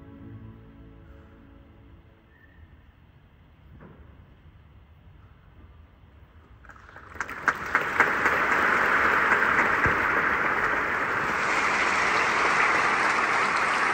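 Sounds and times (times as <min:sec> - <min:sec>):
audience applause: 0:06.7 - 0:13.9.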